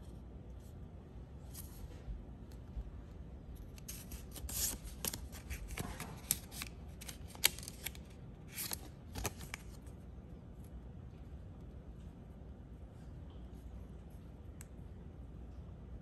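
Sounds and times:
cards rustling and sliding: 0:03.6 - 0:09.8.

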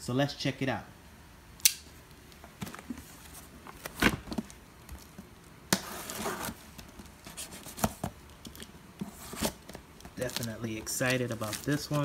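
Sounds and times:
cardboard scraping rustle: 0:05.8 - 0:08.2, 0:09.0 - 0:12.0.

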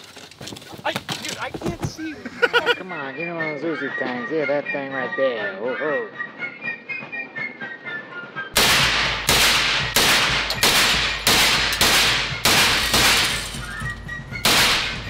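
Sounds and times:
gunshots: 0:08.6 - 0:13.6, 0:14.4 - 0:15.0.

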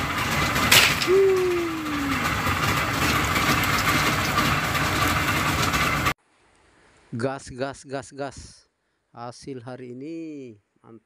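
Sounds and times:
boat engine running: 0:00.0 - 0:06.2
short falling tone: 0:00.9 - 0:02.6.

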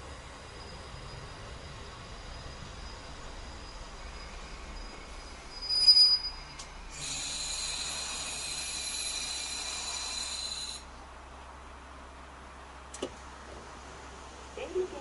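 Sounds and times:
high-pitched train brake squeal: 0:00.3 - 0:10.9.

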